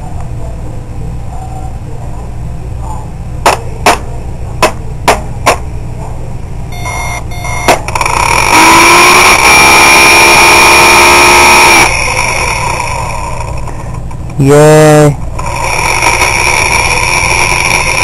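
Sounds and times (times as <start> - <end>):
motor buzzing whine: 6.8 - 13.7, 15.4 - 18.0.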